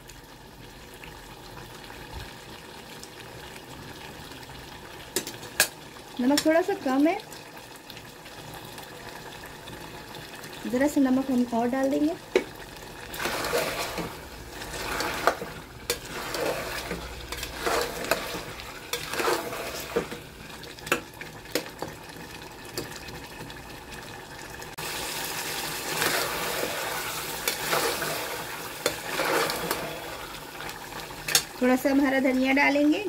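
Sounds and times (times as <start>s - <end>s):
meat sizzling in oil: 0.0s - 33.0s
metal spoon scraping a pot: 13.1s - 20.2s, 27.4s - 30.3s.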